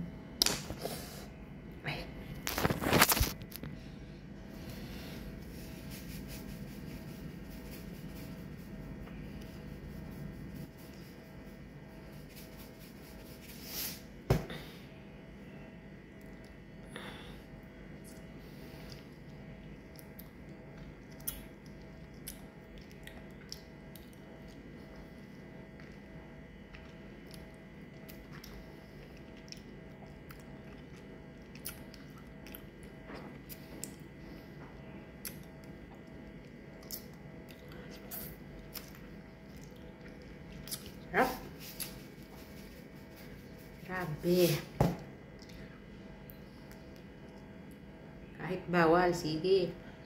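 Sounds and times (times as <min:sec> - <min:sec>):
wet chewing: 0:18.0 - 0:25.1, 0:25.7 - 0:34.1, 0:35.2 - 0:41.1.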